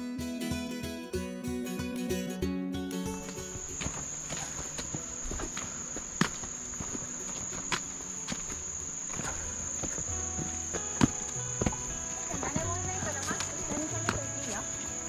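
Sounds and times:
insects droning: 2.9 - 15.0
trekking poles clicking on stones: 3.2 - 15.0.

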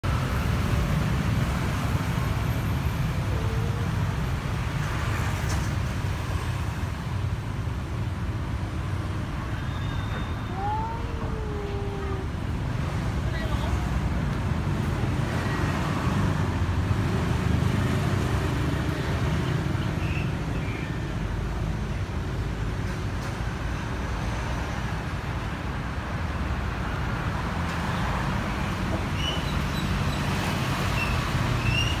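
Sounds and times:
road traffic rumble: 0.0 - 32.0.

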